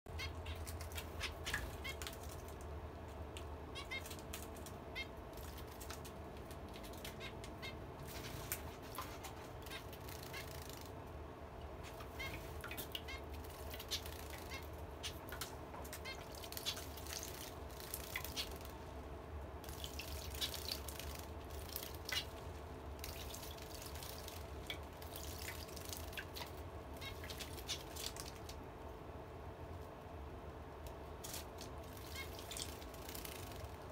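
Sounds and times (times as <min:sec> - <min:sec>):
birds chirping: 0:00.1 - 0:02.5, 0:03.4 - 0:10.9, 0:11.7 - 0:18.8, 0:23.0 - 0:28.6, 0:31.7 - 0:33.9
wings fluttering: 0:00.2 - 0:02.7, 0:03.8 - 0:11.0, 0:11.8 - 0:18.8, 0:19.6 - 0:28.6, 0:31.2 - 0:33.9.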